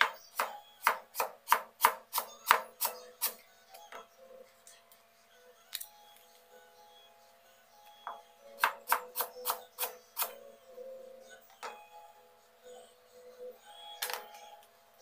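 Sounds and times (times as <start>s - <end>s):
knife chopping on plastic board: 0.0s - 3.4s.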